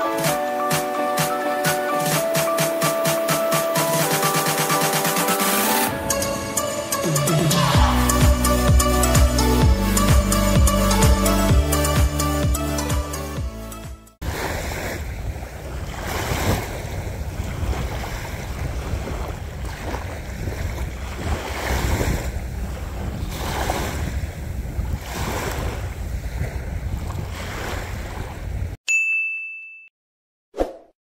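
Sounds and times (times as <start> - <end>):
small waves washing on sand: 14.2 - 28.4
wind rumbling on microphone: 14.2 - 28.8.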